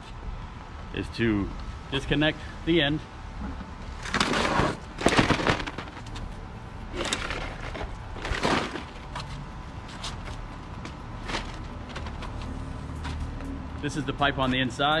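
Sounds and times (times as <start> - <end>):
filter grids scraping and clattering: 4.0 - 6.3, 6.9 - 13.3.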